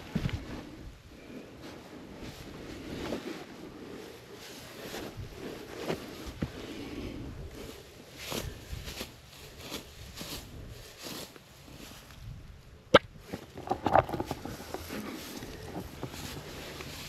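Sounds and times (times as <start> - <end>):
footsteps through dry grass: 1.6 - 6.8, 7.5 - 12.5, 14.2 - 17.0
small clicks and rustles: 13.2 - 17.0.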